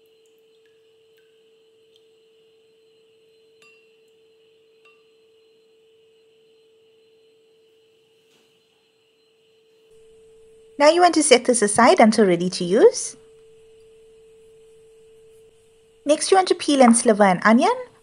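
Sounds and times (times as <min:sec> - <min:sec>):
water dripping into bowl: 0:00.0 - 0:02.7, 0:03.6 - 0:04.2
faint steady hum: 0:00.0 - 0:18.0.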